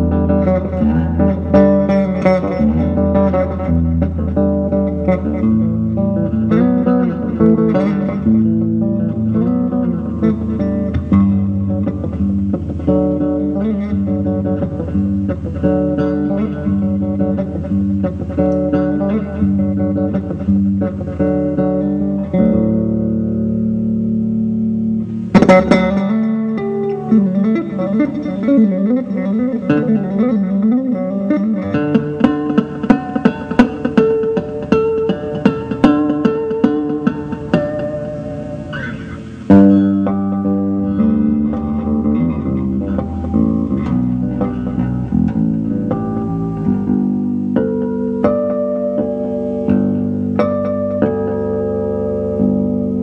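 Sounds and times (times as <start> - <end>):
electric bass guitar plucked notes: 0.0 - 53.0.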